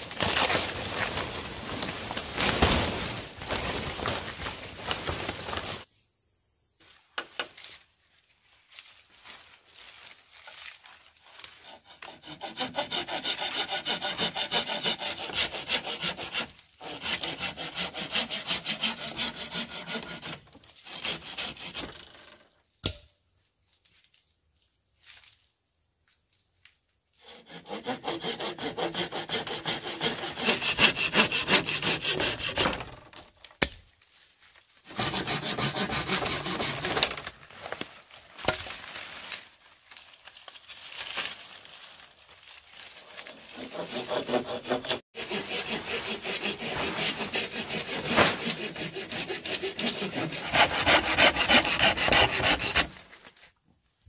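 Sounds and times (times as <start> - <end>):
saw cutting through wood: 11.4 - 22.0, 27.2 - 33.0, 34.9 - 37.2, 43.2 - 53.1.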